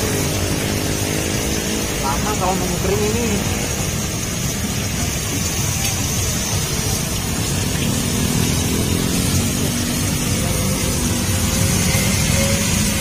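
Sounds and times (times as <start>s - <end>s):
deep-frying sizzle: 0.0s - 13.0s
street traffic rumble: 0.0s - 13.0s.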